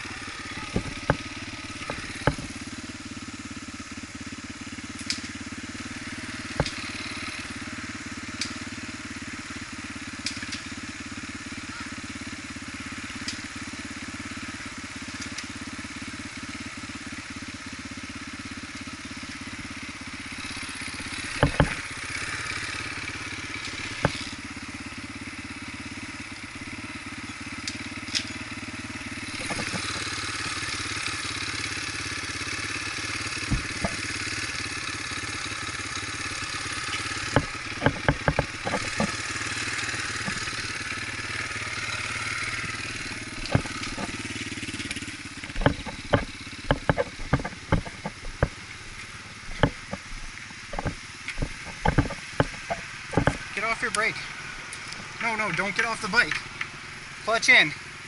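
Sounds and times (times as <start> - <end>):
dirt bike engine running: 0.0 - 58.0
sharp knocks and clatters: 0.5 - 2.7, 6.0 - 7.5, 20.4 - 24.4, 29.2 - 31.7, 32.4 - 35.0, 36.4 - 53.7.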